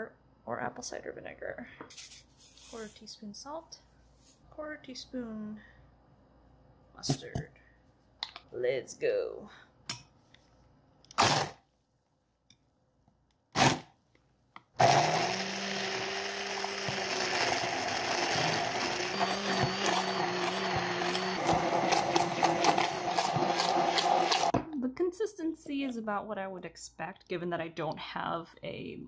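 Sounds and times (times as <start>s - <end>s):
immersion blender whirring: 14.8s - 24.6s.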